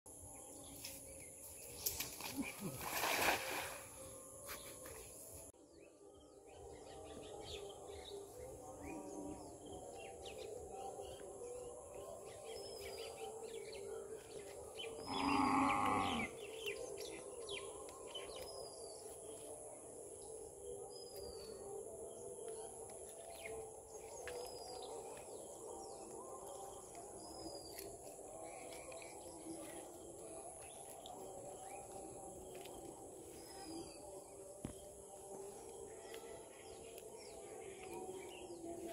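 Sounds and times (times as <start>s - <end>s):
cow mooing: 15.0s - 16.3s.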